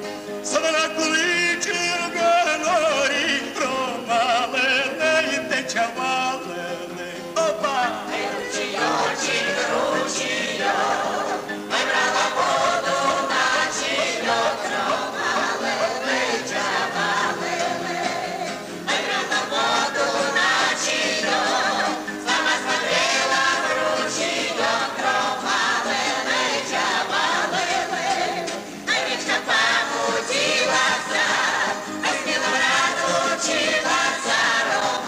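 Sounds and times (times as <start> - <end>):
guitar accompaniment: 0.0 - 35.0
choir singing: 7.4 - 35.0.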